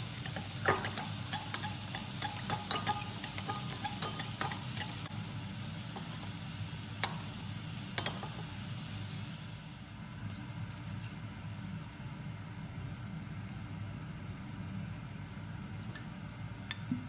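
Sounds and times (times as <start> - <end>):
metal spoon clinking in bowl: 0.1 - 5.3, 5.9 - 6.4, 7.0 - 7.4.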